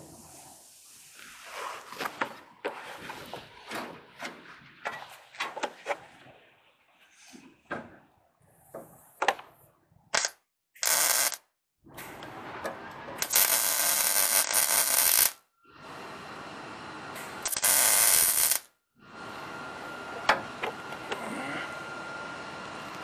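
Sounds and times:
electric arc welder crackling: 10.2s - 11.5s, 13.2s - 15.5s, 17.4s - 18.7s.

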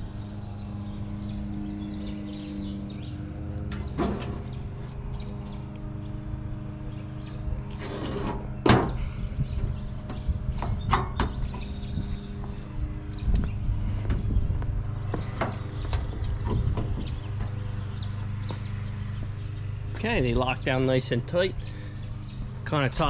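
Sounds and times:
steady low hum: 0.0s - 23.0s
metal lid banging shut: 3.7s - 4.6s, 7.9s - 9.0s.

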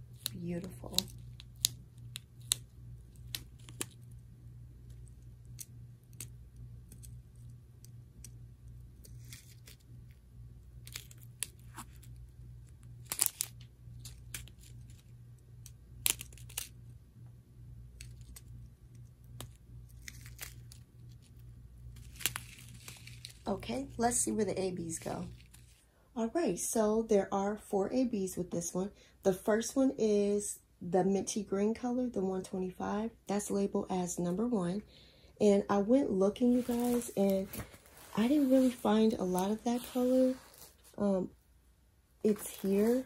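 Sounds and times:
low steady hum: 0.0s - 43.0s
plastic bags crinkling: 19.8s - 23.7s, 36.4s - 41.0s, 42.3s - 43.0s.

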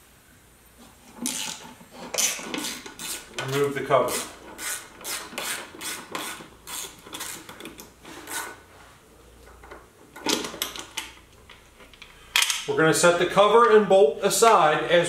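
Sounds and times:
metal on metal scraping: 0.8s - 8.6s.

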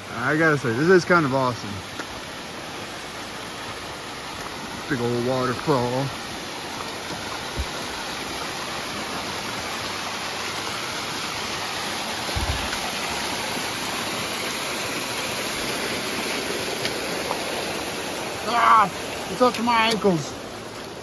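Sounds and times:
waterfall rushing: 0.0s - 21.0s
dull low thumps: 7.4s - 8.0s.

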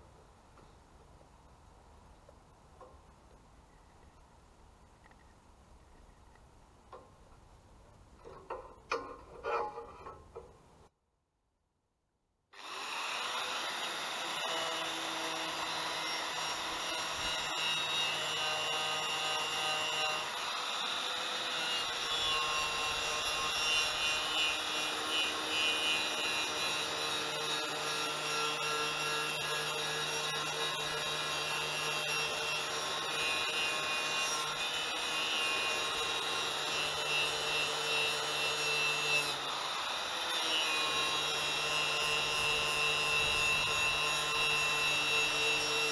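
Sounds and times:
wire brush scraping metal: 8.5s - 10.5s.

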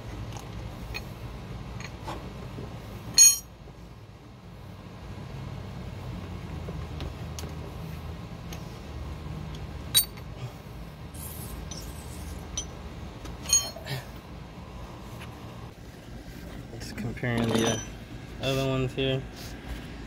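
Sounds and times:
low steady hum: 0.0s - 20.0s
tools clinking on metal: 3.2s - 3.5s, 9.9s - 10.3s, 13.4s - 14.0s, 17.4s - 18.0s.

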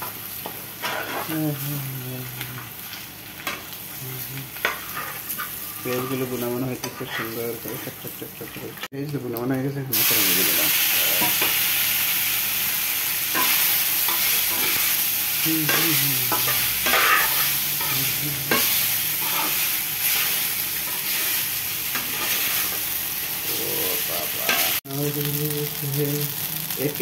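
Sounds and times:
food sizzling in frying pan: 0.0s - 27.0s
metal spoon scraping pan: 4.6s - 7.5s, 15.7s - 22.8s, 24.4s - 24.8s.

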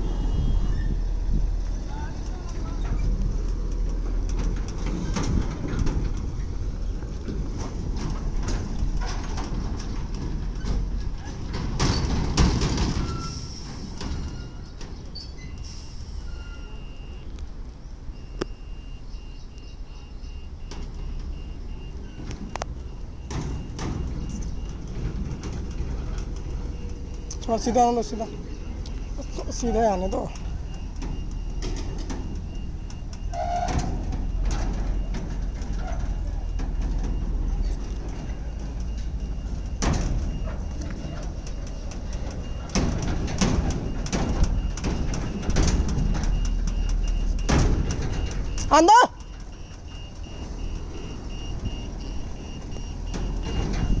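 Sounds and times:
diesel truck engine rumbling: 0.0s - 54.0s
faint high beeping: 15.4s - 17.3s, 26.5s - 33.4s.

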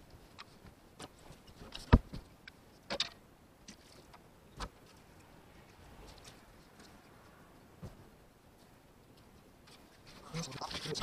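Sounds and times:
knocks and thumps of handling: 0.4s - 2.3s, 7.8s - 8.1s.

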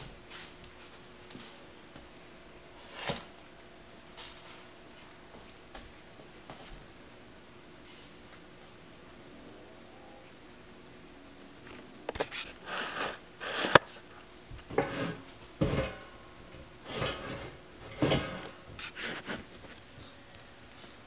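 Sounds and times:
claws scraping metal stool: 12.1s - 14.0s, 14.6s - 19.5s
stool frame rattling on wooden floor: 16.9s - 18.6s.

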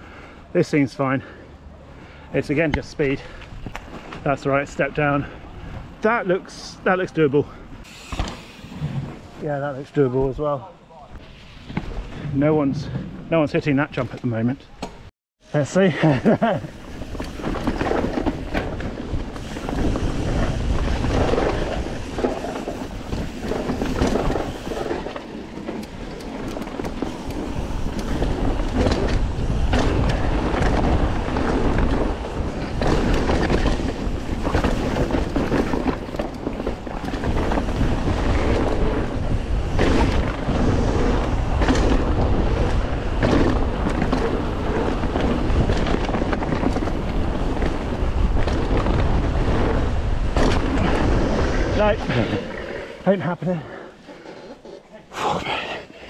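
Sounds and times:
bike tyre roar: 16.0s - 55.8s
wind rushing over microphone: 16.1s - 53.0s
bike knocking over bumps: 26.4s - 39.0s, 41.5s - 51.0s.

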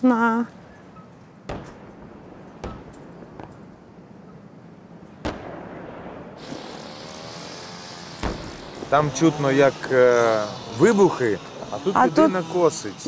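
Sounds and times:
distant explosions: 1.4s - 7.0s, 8.2s - 9.9s
string trimmer running: 6.4s - 13.0s.

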